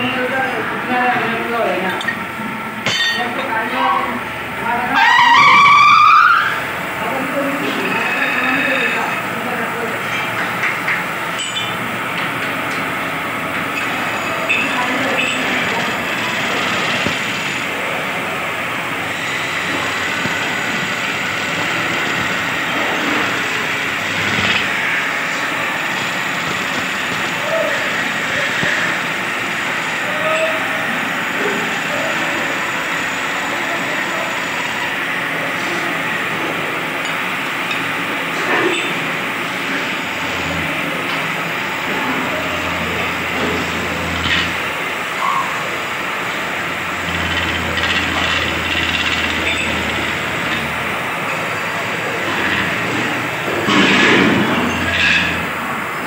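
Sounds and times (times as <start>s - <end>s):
lathe running: 0.0s - 56.0s
turning tool cutting wood: 19.1s - 27.4s, 41.8s - 44.8s, 45.9s - 53.6s
gouge rasping into spinning wood: 46.8s - 51.0s.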